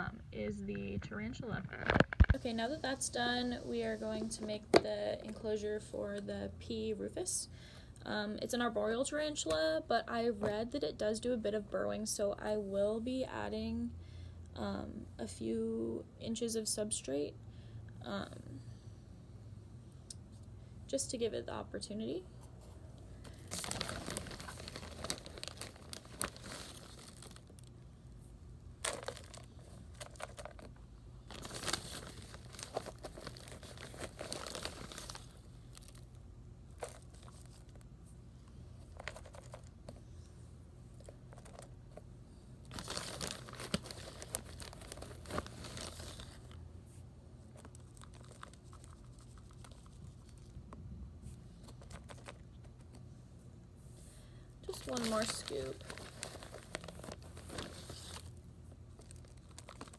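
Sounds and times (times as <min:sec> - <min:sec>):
plastic bag crinkling: 0:23.3 - 0:27.7, 0:28.8 - 0:37.8, 0:38.9 - 0:39.8, 0:41.0 - 0:42.0, 0:42.6 - 0:46.6, 0:47.5 - 0:50.5, 0:54.7 - 0:59.9.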